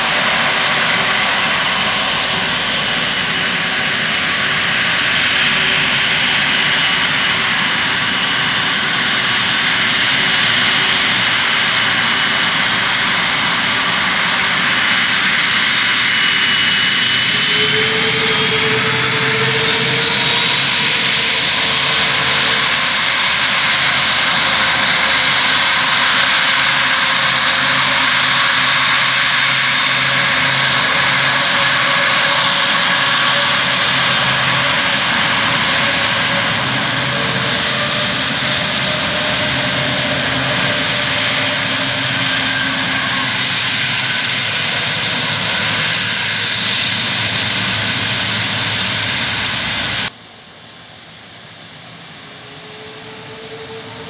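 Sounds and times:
jet engines rushing: 0.0 - 50.2, 51.0 - 54.0
high whining tones: 13.4 - 50.1.

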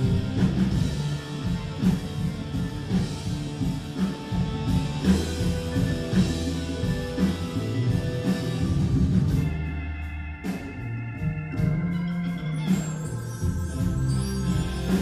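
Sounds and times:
drum and cymbal hits: 0.0 - 15.0
live rock band: 0.0 - 15.0
organ chord: 0.0 - 15.0.

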